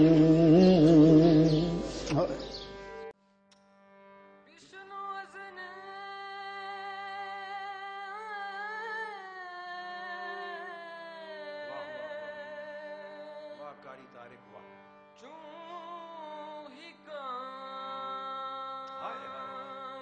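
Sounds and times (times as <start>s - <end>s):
solo voice singing held notes: 0.0s - 2.5s.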